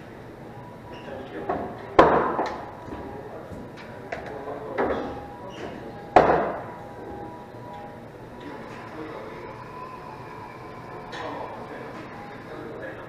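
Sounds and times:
pool balls clacking: 1.4s - 9.0s.

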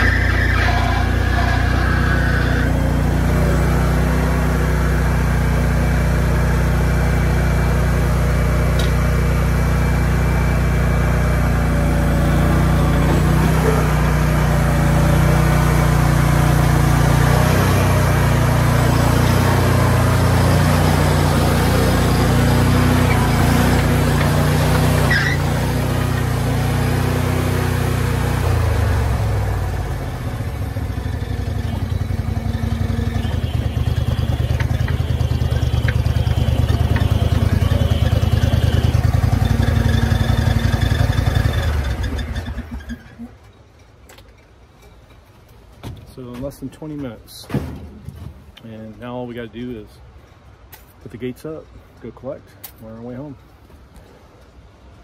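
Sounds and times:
stump grinder engine running: 0.0s - 43.2s.

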